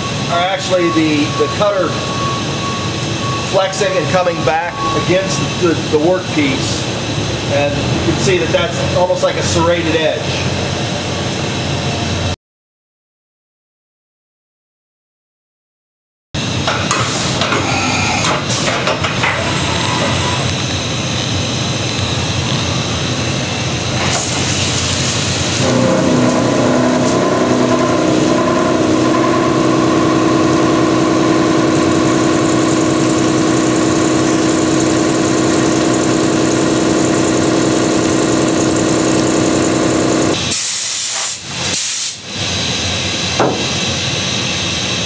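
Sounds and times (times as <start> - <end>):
pitched cutting whine: 16.6 - 40.5
coolant spray and cutting hiss: 16.9 - 28.2, 32.4 - 45.0.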